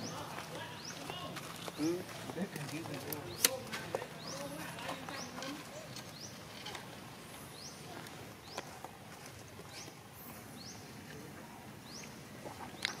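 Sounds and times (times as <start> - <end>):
bird chirping: 0.0 - 8.8
background hiss: 0.0 - 13.0.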